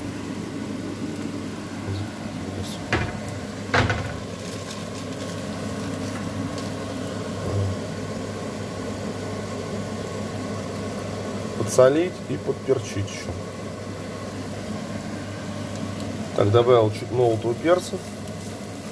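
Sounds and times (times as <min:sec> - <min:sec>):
meat sizzling in a pan: 0:00.0 - 0:18.9
steady low hum: 0:00.0 - 0:18.9
sharp knocks: 0:02.9 - 0:04.3.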